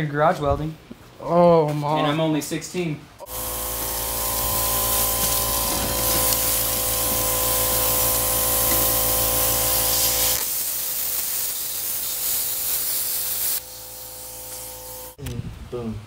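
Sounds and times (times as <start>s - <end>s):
welding arc crackling hiss: 3.2s - 15.2s.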